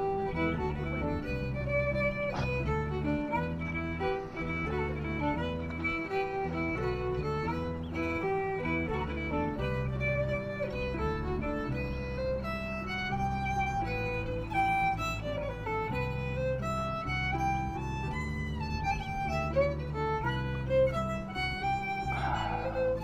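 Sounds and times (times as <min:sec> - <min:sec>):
fiddle tune with accompaniment: 0:00.0 - 0:23.0.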